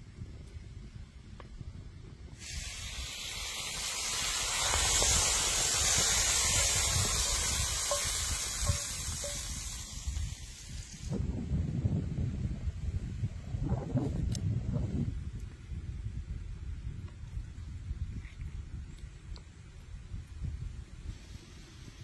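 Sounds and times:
vegetables sizzling in a skillet: 2.4s - 11.1s.

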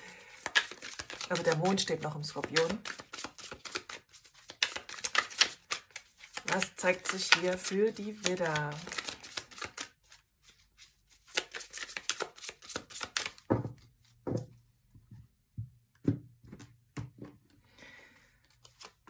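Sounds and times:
cards shuffled by hand: 0.2s - 13.8s, 18.4s - 19.0s.

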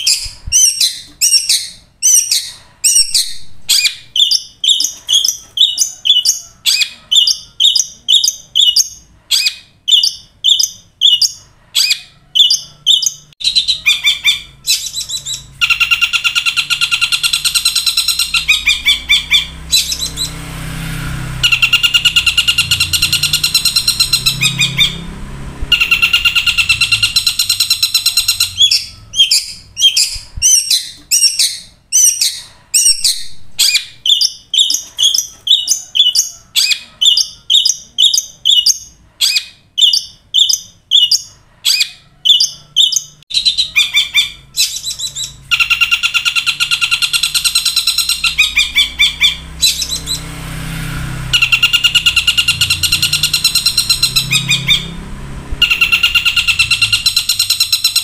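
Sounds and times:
shrike calling sharp notes: 13.4s - 29.7s
low rumble: 18.8s - 27.2s.

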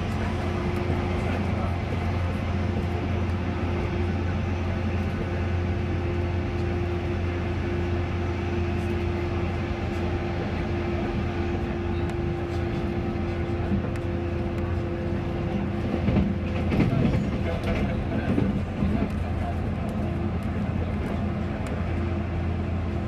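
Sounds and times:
running gear rumble: 0.0s - 23.0s.

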